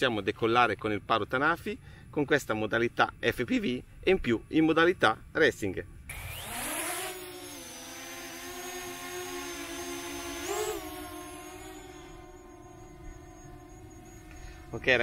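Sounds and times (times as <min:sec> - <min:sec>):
drone propellers buzzing: 0:06.1 - 0:15.0.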